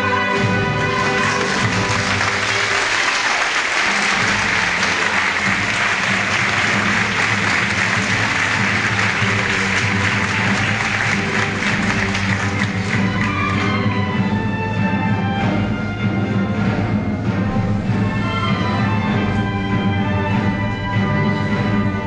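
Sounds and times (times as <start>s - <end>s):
band music: 0.0s - 22.0s
crowd applauding: 0.4s - 14.1s.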